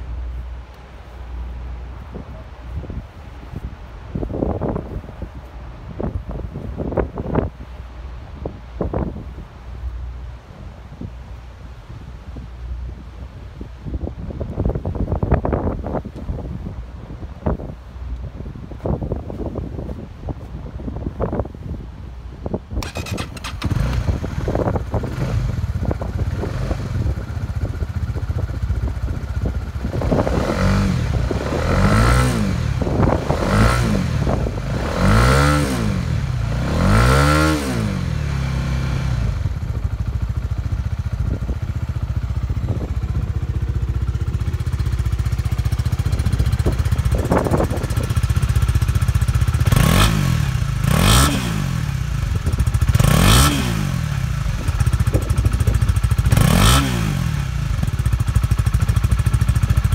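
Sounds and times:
motorcycle engine idling: 22.7 - 31.6, 37.9 - 50.8, 51.6 - 59.9
motorcycle engine starting: 22.7 - 59.9.

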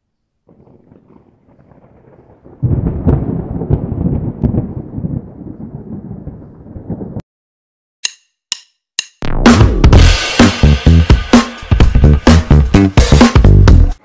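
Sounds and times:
thunder rumble and crash: 0.5 - 7.2.

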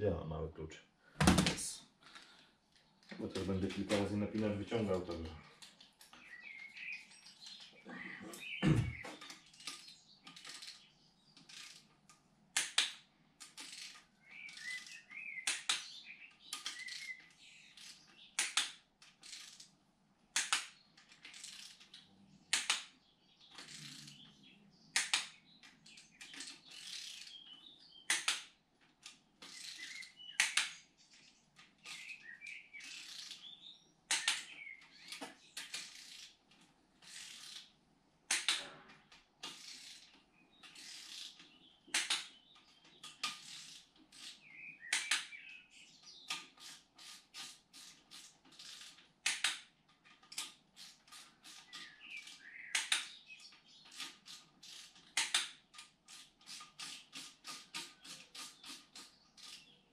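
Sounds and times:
ratchet wrench clicking: 56.1 - 59.6.

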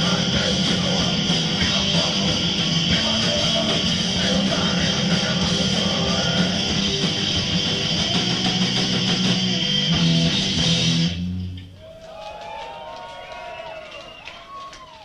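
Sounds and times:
punk rock band playing: 0.0 - 11.4
distorted electric guitar: 0.0 - 11.7.

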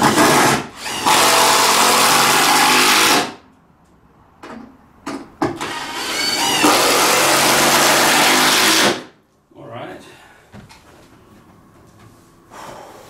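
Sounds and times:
power drill driving screws: 0.0 - 3.4, 5.6 - 9.1.

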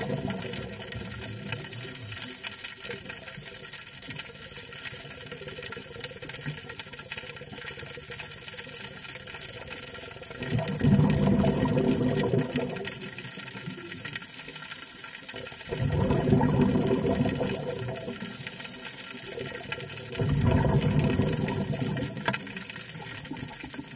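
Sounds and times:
underwater exhaust bubbles rushing: 0.0 - 2.5, 10.4 - 13.8, 15.2 - 23.9
faint steady hiss: 0.0 - 23.9.

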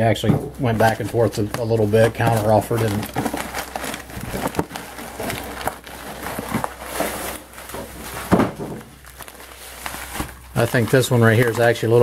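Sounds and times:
cardboard rustling and scraping: 0.0 - 12.0
cardboard box thump: 8.2 - 8.9.

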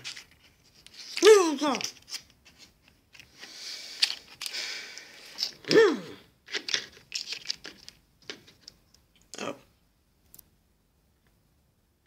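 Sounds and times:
plastic packets crinkling: 6.5 - 8.7.

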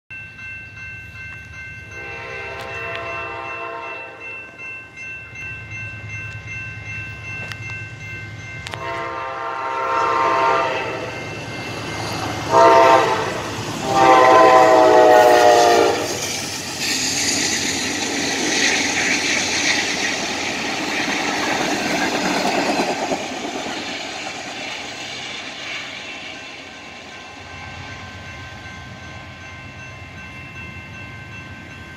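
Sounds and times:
crossing bell ringing: 0.1 - 31.9
train passing: 0.1 - 31.9
locomotive horn blasts: 2.0 - 4.3, 8.6 - 11.2, 12.4 - 16.2.

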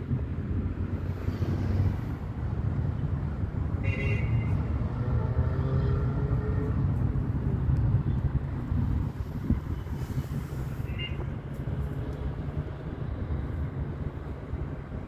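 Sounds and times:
motor vehicle rumbling: 0.0 - 15.0.

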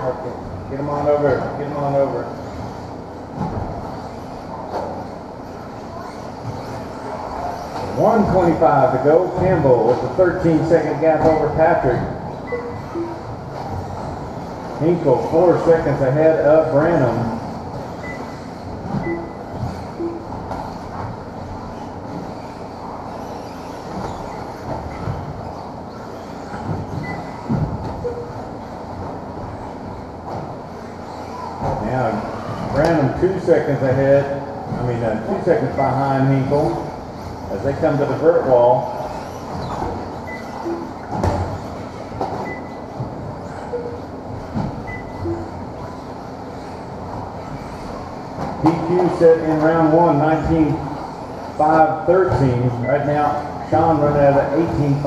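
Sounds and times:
rc car motors whirring: 21.5 - 27.5, 36.6 - 42.1.

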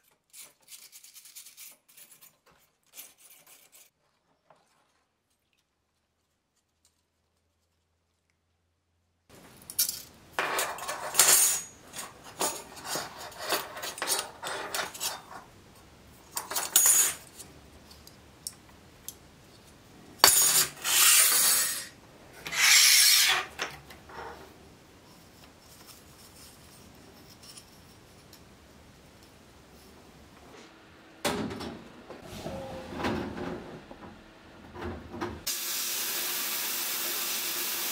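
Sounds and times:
metal parts scraping and clinking: 9.6 - 15.5, 16.2 - 18.1, 20.2 - 24.4.

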